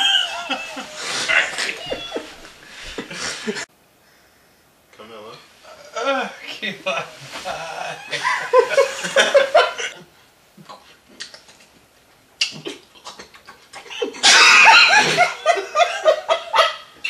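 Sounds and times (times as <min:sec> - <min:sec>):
person laughing: 0:00.0 - 0:03.7, 0:07.5 - 0:10.0, 0:13.8 - 0:16.6.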